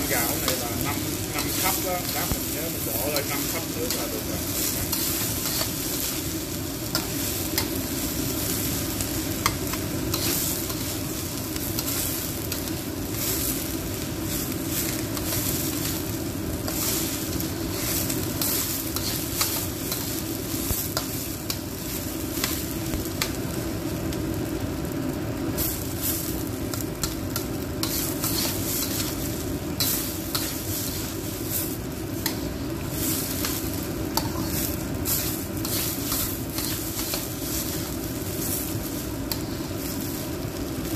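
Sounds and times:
rice sizzling in oil: 0.0s - 40.9s
metal spatula scraping a pan: 0.2s - 6.2s, 27.8s - 29.2s.

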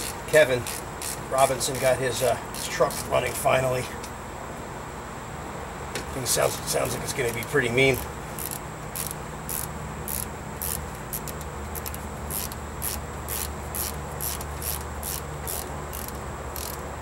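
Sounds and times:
high-pitched buzz: 0.0s - 3.2s
insects chirping: 0.0s - 17.0s.

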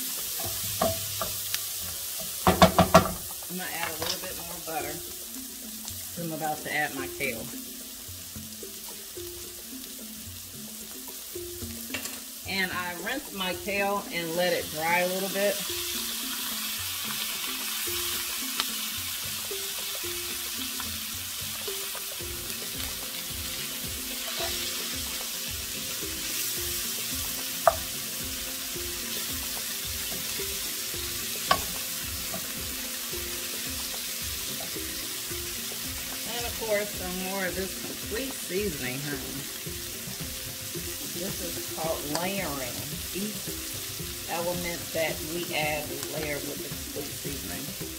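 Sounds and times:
vegetables sizzling in skillet: 0.0s - 47.9s
wooden spoon knocking pan: 0.3s - 1.6s, 2.2s - 4.2s, 27.2s - 28.0s, 29.9s - 32.8s.

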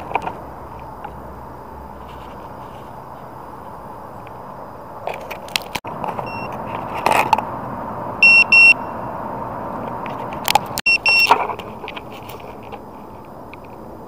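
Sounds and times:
short electronic beeps: 6.2s - 6.5s, 8.2s - 9.0s, 10.9s - 11.3s.

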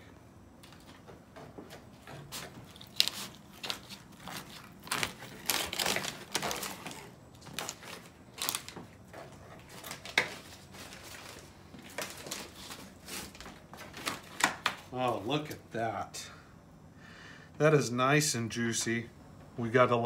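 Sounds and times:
paper crinkling: 2.3s - 14.9s.

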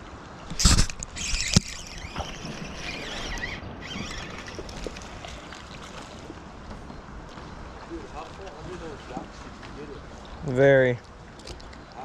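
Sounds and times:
fishing reel rattling and splashing: 0.5s - 6.1s.

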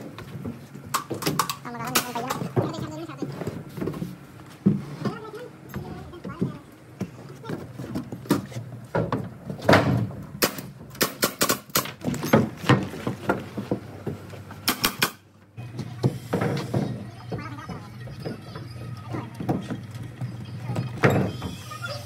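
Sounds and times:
nail gun shots into wood: 10.4s - 12.0s, 14.6s - 15.2s.

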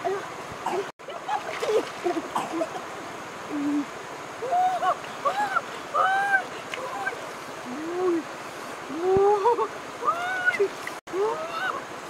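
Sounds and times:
rushing river water: 0.0s - 12.0s
water splashing: 0.0s - 12.0s
woman crying out and laughing: 4.4s - 8.2s, 8.9s - 11.8s.

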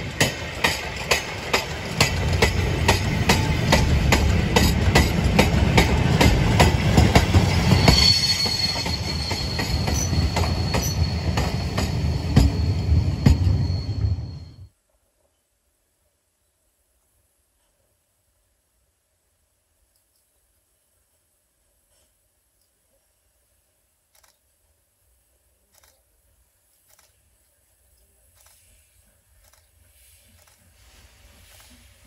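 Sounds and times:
high wheel squeal: 7.4s - 14.7s.

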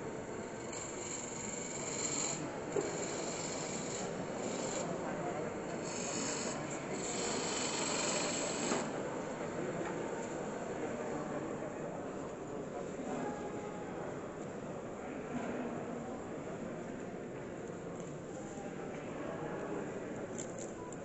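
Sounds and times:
wood lathe tool cutting wood: 0.6s - 4.9s, 5.8s - 8.9s.

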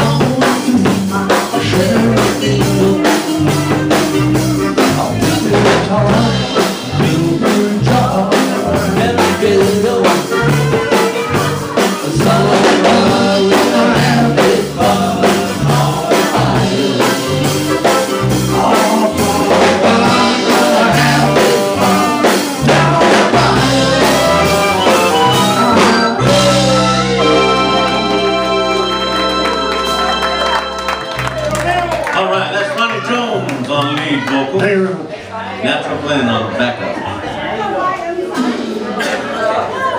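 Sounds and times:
live band playing upbeat song: 0.0s - 34.8s, 38.1s - 39.9s
saxophone: 2.6s - 5.5s, 10.0s - 14.4s, 15.2s - 31.9s
sustained organ chord: 11.6s - 32.5s.

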